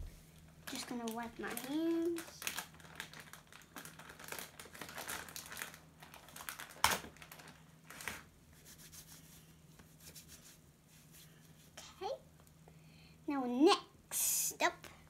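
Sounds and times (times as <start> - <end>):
crinkling and rustling: 0.4 - 8.3.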